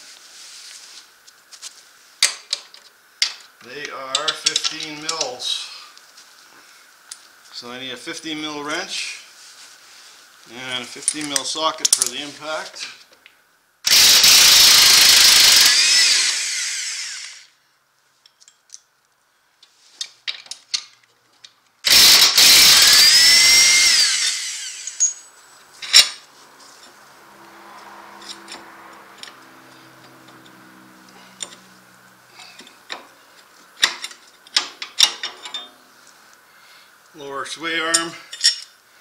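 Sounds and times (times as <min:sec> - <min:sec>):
impact wrench whining: 0:13.9 - 0:17.6, 0:21.8 - 0:26.2
clicks and knocks of parts: 0:20.0 - 0:21.6, 0:32.4 - 0:35.8.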